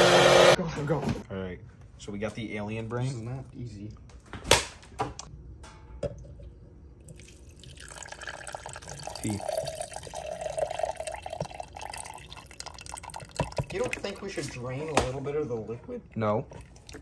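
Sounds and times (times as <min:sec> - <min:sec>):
mixture pouring into blender jar: 0:07.1 - 0:14.9.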